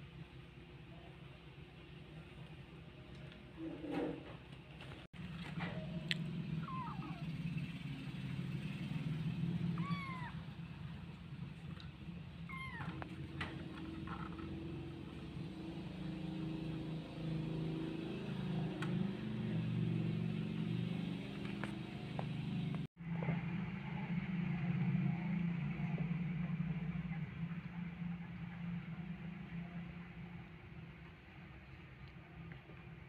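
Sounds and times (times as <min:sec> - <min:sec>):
kitten mewing: 0:06.5 - 0:07.4, 0:09.7 - 0:10.5, 0:12.4 - 0:13.2.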